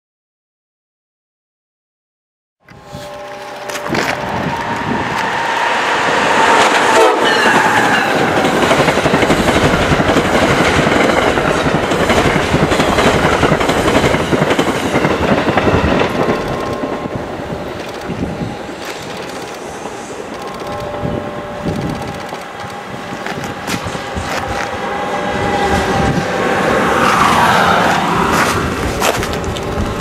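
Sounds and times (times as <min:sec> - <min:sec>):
locomotive horn: 0:02.7 - 0:08.8, 0:19.7 - 0:28.4
train cars rushing and clacking: 0:02.7 - 0:30.0.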